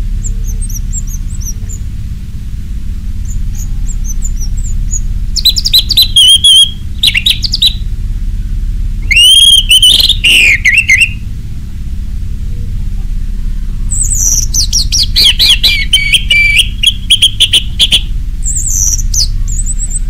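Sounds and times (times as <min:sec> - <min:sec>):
steady low hum: 0:00.0 - 0:20.0
bird singing whistled notes: 0:00.2 - 0:01.9, 0:03.2 - 0:07.8, 0:09.0 - 0:11.2, 0:13.9 - 0:20.0.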